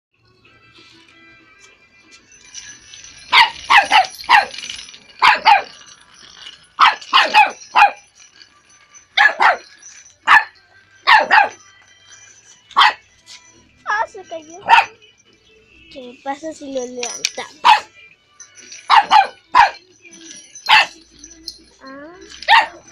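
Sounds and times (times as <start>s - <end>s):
small dog barking: 11.1s - 11.6s, 17.6s - 17.9s, 22.5s - 22.8s.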